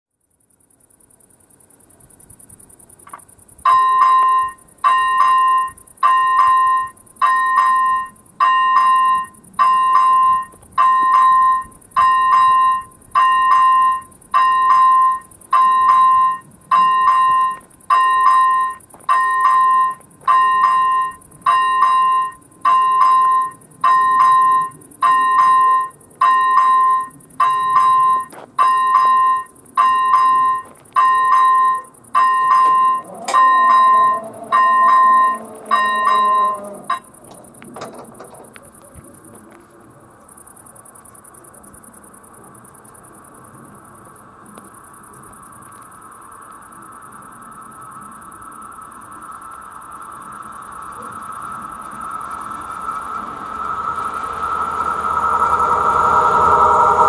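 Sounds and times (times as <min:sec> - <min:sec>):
electronic warning bell ringing: 0:03.6 - 0:37.4
faint high hiss: 0:40.3 - 0:57.0.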